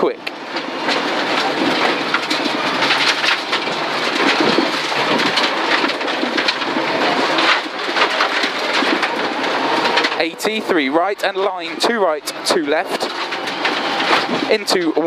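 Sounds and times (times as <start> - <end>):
car engine running: 0.0 - 15.0
stones rattling against car underbody: 0.5 - 10.2.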